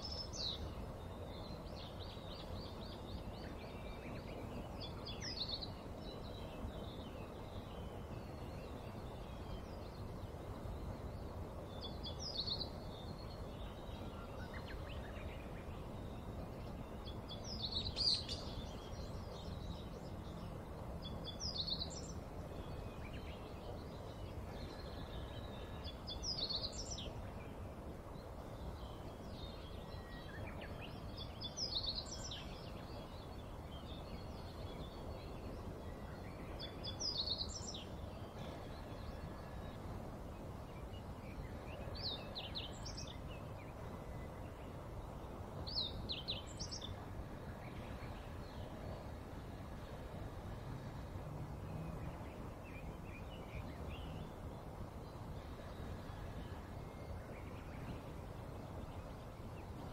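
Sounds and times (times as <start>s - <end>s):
outdoor background noise: 0.0s - 59.9s.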